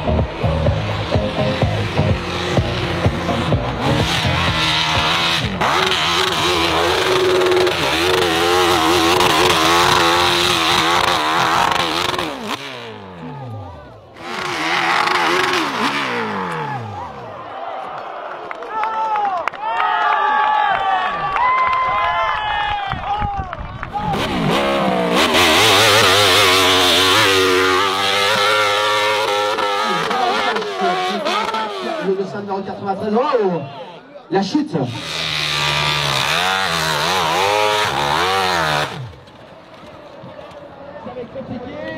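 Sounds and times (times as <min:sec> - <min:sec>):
dirt bike engine revving: 0:00.0 - 0:17.5, 0:23.9 - 0:33.2, 0:34.6 - 0:39.4.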